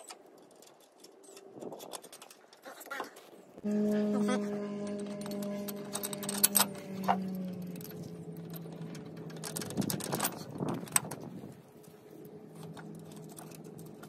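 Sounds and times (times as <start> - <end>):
low steady hum: 3.5 - 14.0.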